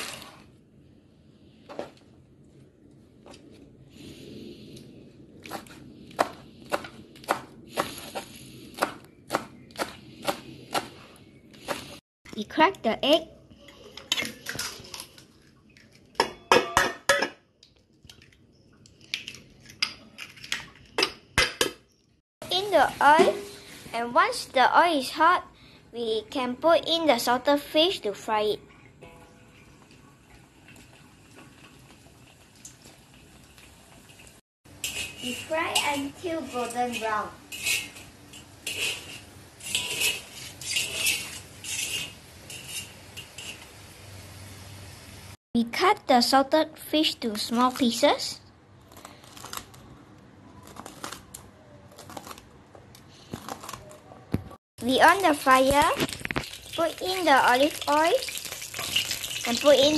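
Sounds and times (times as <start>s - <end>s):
metal tongs scraping a wok: 34.7s - 43.8s.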